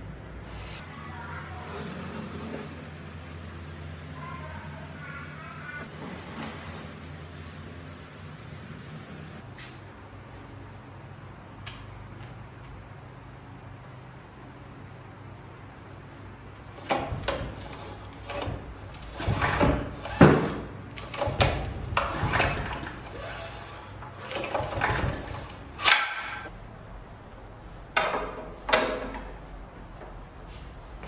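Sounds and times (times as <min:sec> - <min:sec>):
recoil starter cord ratcheting whirr: 0:16.8 - 0:26.5.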